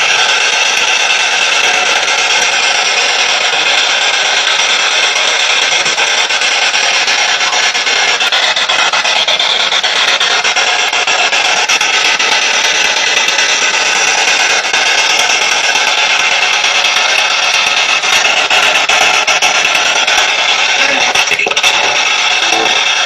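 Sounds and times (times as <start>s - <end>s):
rapid crackling clicks: 0.0s - 23.0s
static hiss: 10.0s - 23.0s.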